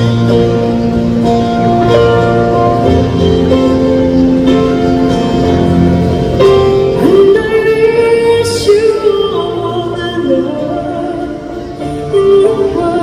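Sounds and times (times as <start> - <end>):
keyboard accompaniment: 0.0 - 13.0
woman singing a slow ballad: 7.0 - 13.0.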